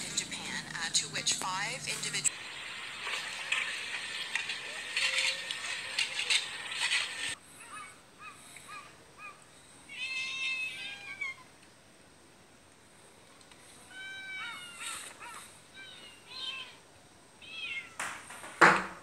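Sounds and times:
cats meowing: 7.6s - 11.5s, 13.8s - 16.8s, 17.4s - 18.1s.

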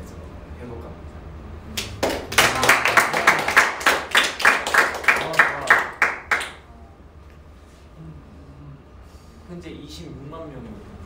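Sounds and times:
people clapping: 1.7s - 6.7s.

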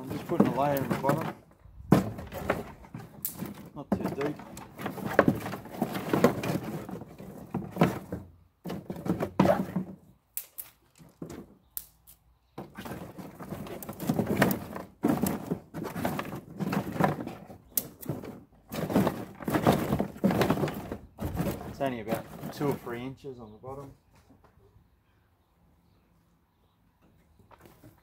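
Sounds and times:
branches clattering in plastic tub: 0.0s - 11.6s, 12.6s - 23.1s.

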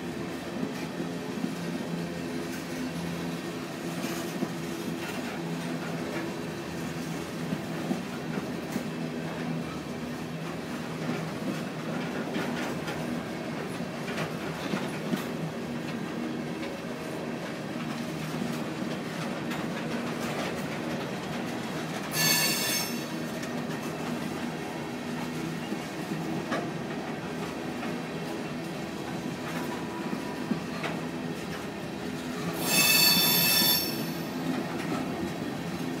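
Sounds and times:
freight train rumbling past: 0.0s - 36.0s
train wheels clicking: 10.5s - 36.0s
train wheel squealing: 22.0s - 23.9s, 32.2s - 36.0s.

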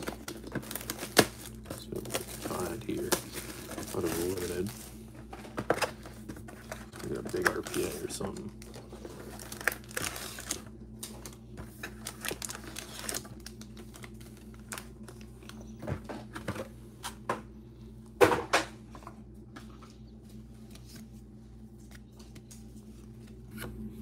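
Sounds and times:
card pack rustling and clicking: 0.0s - 16.6s.

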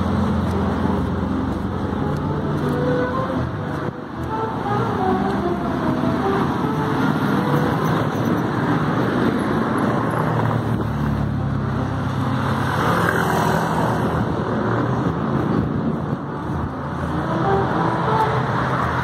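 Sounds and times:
car engines: 0.0s - 19.0s
motorcycle engines: 0.0s - 19.0s.

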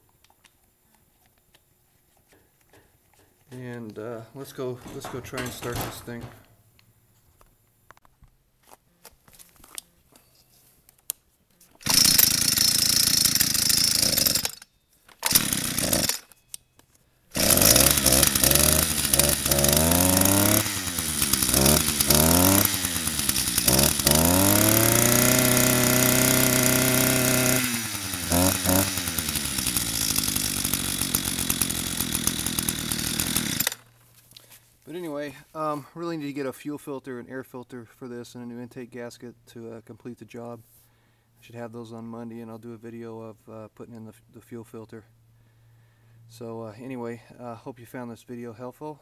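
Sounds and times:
string trimmer engine revving: 11.8s - 14.6s, 15.2s - 16.3s, 17.3s - 33.9s.

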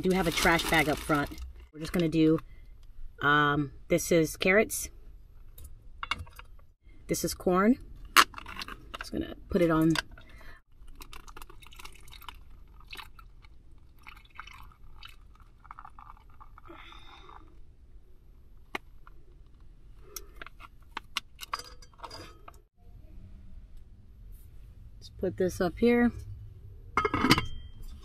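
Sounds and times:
plastic bag crinkling: 0.0s - 1.6s
low steady hum: 0.0s - 28.0s.

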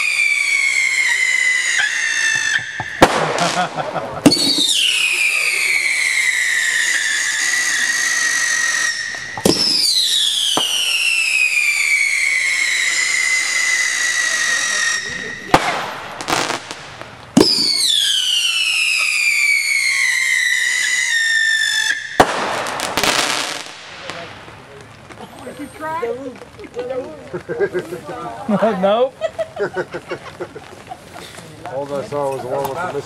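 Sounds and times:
fireworks whistling: 0.0s - 26.2s
crackling bangs: 0.0s - 27.7s.

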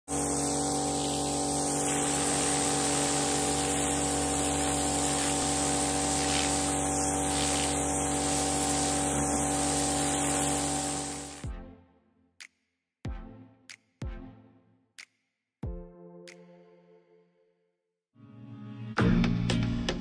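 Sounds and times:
pressure washer pump humming: 0.0s - 11.4s
water spray hissing on concrete: 0.1s - 11.4s.

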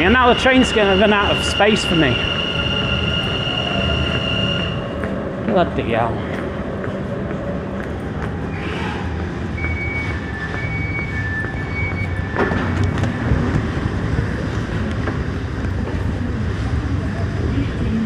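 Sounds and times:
train interior rumbling: 0.0s - 18.0s
door-closing warning beeps: 9.6s - 13.1s.

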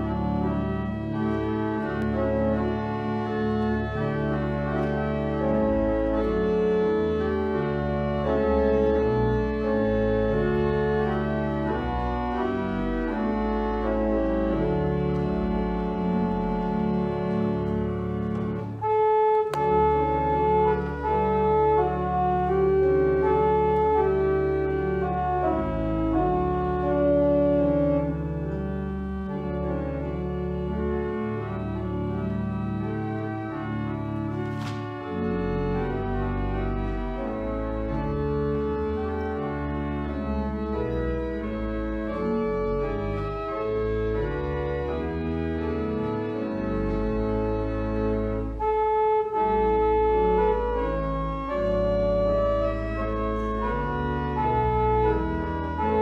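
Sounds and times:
organ playing: 0.0s - 56.0s
click: 15.1s - 15.4s, 17.3s - 18.7s, 19.3s - 21.2s.

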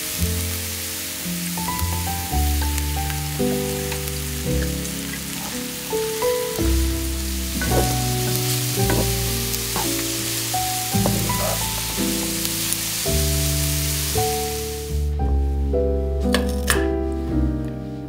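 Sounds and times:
vegetables sizzling in oil: 0.0s - 15.0s
background music: 0.0s - 18.0s
wooden spatula stirring: 3.9s - 13.1s.

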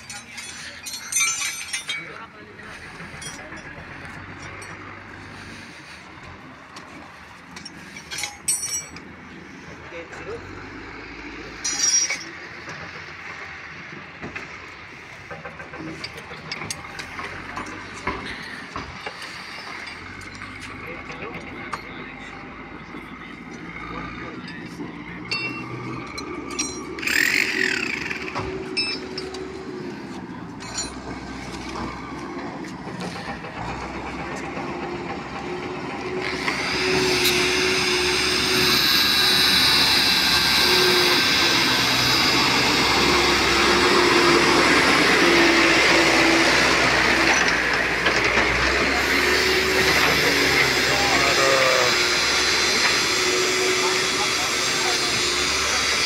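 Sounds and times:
metallic clinks of gauge bar: 0.0s - 2.2s, 11.6s - 12.4s, 25.3s - 27.7s, 28.7s - 29.5s
metallic clinks on rails: 0.0s - 5.4s, 6.8s - 9.2s, 11.5s - 13.5s, 14.2s - 22.5s, 23.4s - 35.7s, 37.0s - 50.9s
machine engine humming: 0.0s - 56.0s.

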